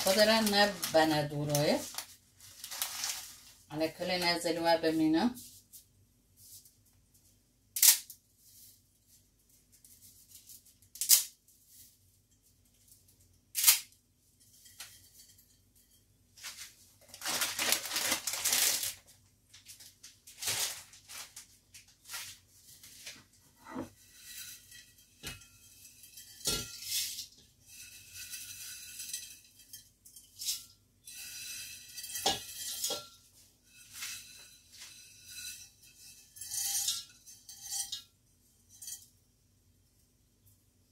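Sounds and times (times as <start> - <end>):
rustling: 0.0 - 3.7, 16.3 - 38.0.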